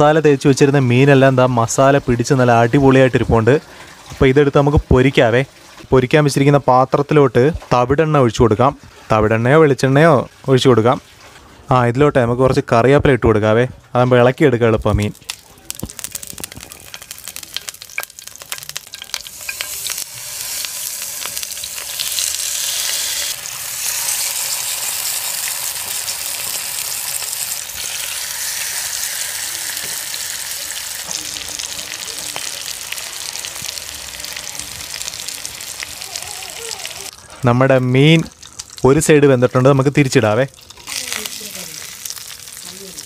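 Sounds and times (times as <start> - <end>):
leaves crackling in hot oil: 0.0 - 11.4, 14.8 - 43.0
fish sizzling in pan: 15.0 - 37.3, 38.2 - 39.0, 40.5 - 43.0.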